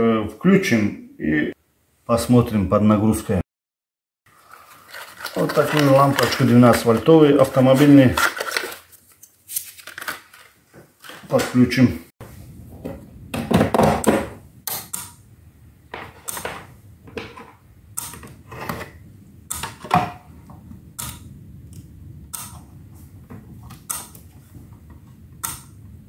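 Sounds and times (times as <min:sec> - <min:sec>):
metal parts clattering: 0:07.8 - 0:08.9
steady low hum: 0:12.2 - 0:26.0.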